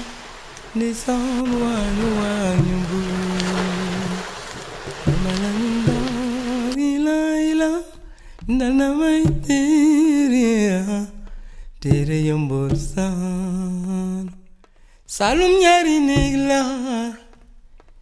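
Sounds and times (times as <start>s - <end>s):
solo voice singing: 0.0s - 14.5s, 15.1s - 17.4s.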